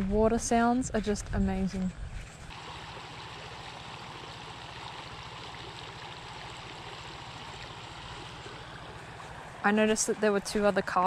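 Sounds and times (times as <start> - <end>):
creek water rushing over stones: 2.5 - 10.1.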